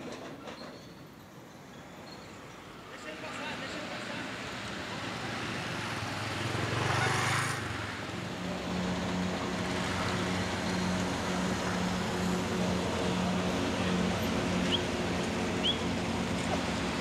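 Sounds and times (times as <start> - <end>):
car engine humming: 10.2 - 17.0.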